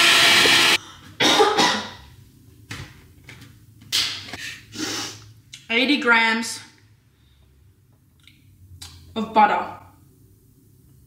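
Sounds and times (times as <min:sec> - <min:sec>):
electric hand mixer beating batter: 0:00.0 - 0:00.8
short cough-like bursts: 0:01.2 - 0:02.0.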